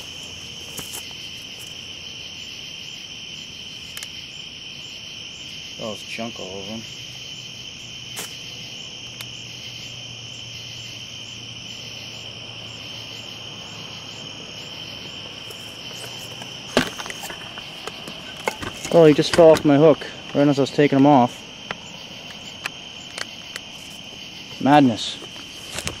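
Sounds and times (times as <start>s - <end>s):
crickets trilling: 0.0s - 26.0s
clicks and rustles: 15.4s - 20.4s, 25.0s - 26.0s.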